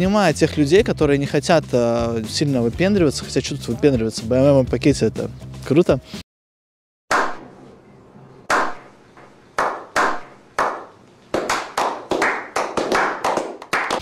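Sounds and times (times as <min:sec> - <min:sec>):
sharp clap-like hits with echo: 0:07.1 - 0:07.5, 0:08.5 - 0:14.0.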